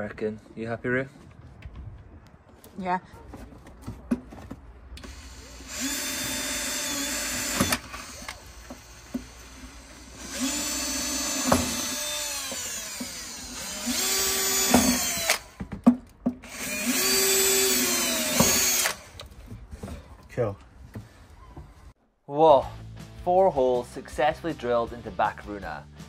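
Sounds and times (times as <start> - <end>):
cordless drill boring: 5.0 - 15.6, 16.4 - 19.3.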